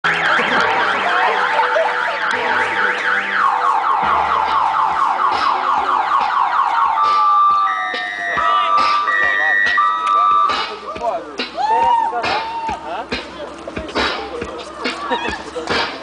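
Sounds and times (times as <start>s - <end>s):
steady electronic tones: 0.0s - 11.4s
electronic siren wailing: 0.1s - 10.7s.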